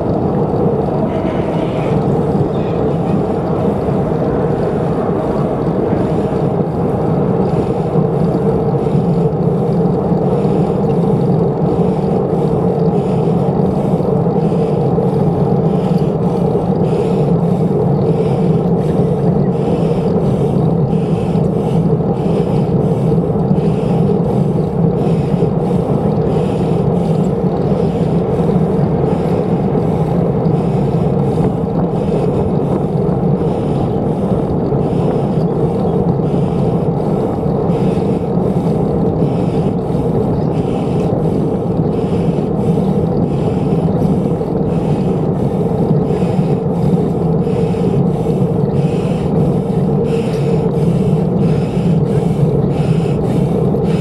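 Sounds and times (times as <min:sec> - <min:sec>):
soft pulse: 0:00.0 - 0:09.3
wind on microphone: 0:00.0 - 0:14.0
bicycle tyres rolling: 0:00.0 - 0:54.0.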